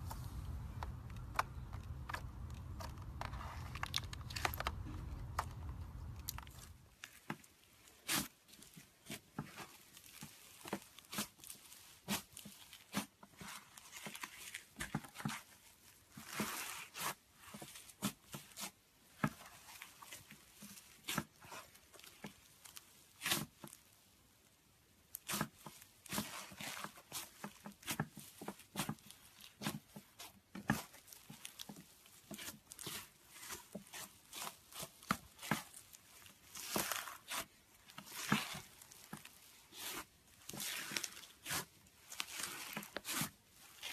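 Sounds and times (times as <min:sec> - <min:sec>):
slime crackling and tearing: 0:00.0 - 0:07.2, 0:25.1 - 0:43.9.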